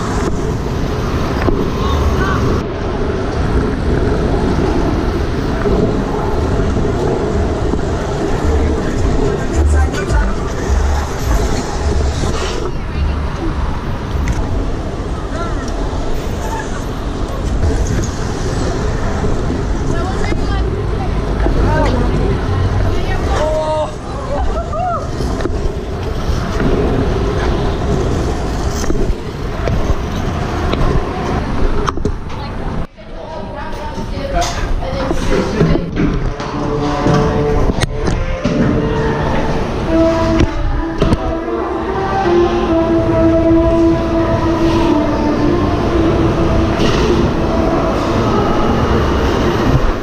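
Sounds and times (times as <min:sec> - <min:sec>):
wind buffeting camera microphone: 0:00.0 - 0:16.3, 0:16.9 - 0:32.9
nearby cars and tyres on street: 0:00.0 - 0:50.0
scooter wheels rolling on asphalt: 0:00.0 - 0:50.0.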